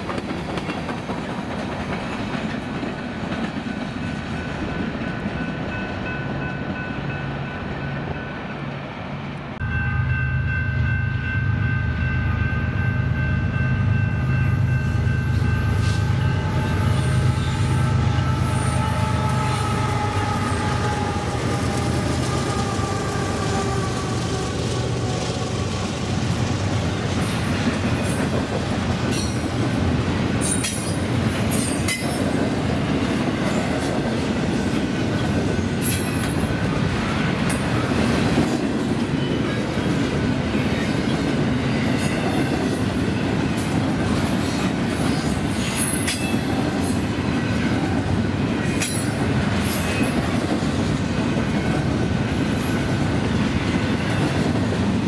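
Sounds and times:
clickety-clack of wheels: 0:00.0 - 0:05.4, 0:21.5 - 0:55.0
train wheels rumbling on rail: 0:00.0 - 0:55.0.

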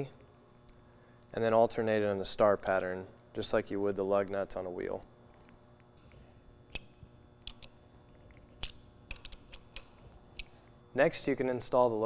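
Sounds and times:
nut driver clicking on bolts: 0:08.6 - 0:10.5.

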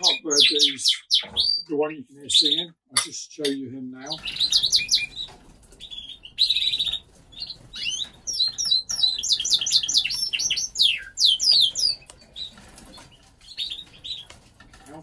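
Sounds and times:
canary singing buzzy trills: 0:03.9 - 0:14.4.

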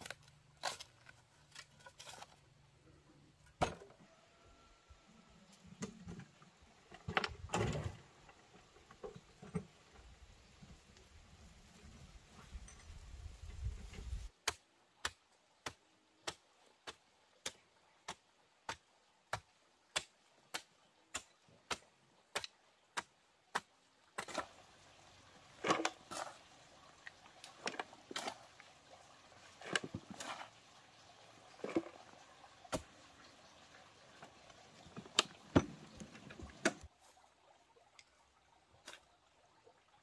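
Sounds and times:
bamboo clattering and scraping: 0:00.0 - 0:04.2, 0:05.5 - 0:11.0, 0:20.6 - 0:37.2.

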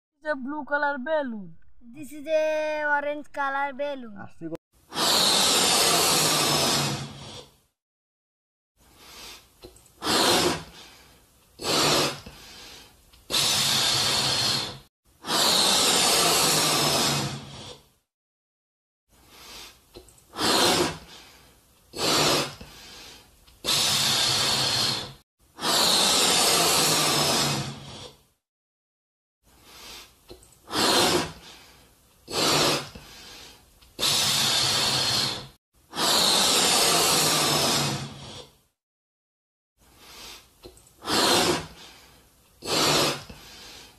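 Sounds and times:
breath inflating balloons: 0:04.8 - 0:07.7, 0:08.8 - 0:18.0, 0:19.1 - 0:28.4, 0:29.4 - 0:38.8, 0:39.8 - 0:43.9.

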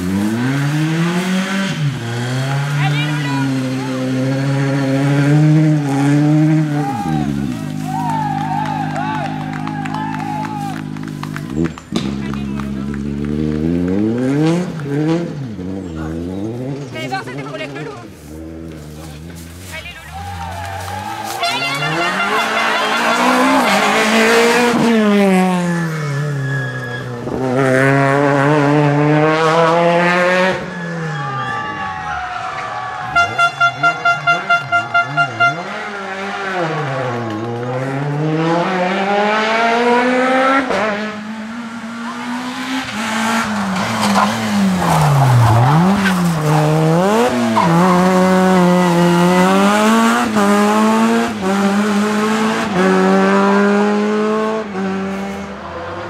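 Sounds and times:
rally car engines revving: 0:00.0 - 0:56.0
short beeps: 0:25.5 - 0:27.2.

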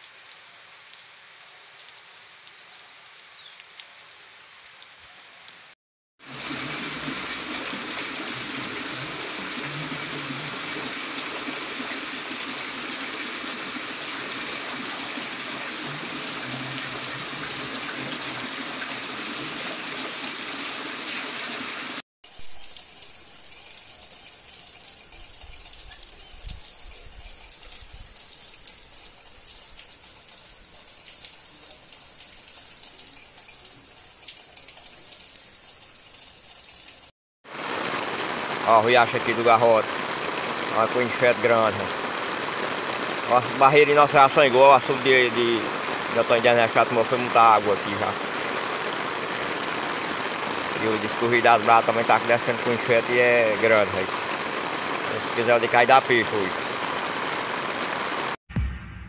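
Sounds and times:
rain drops pattering: 0:00.0 - 0:20.1, 0:22.3 - 0:58.4
heavy rain pouring: 0:06.2 - 0:22.0, 0:37.4 - 0:58.4
low rumbles: 0:58.5 - 0:59.0.

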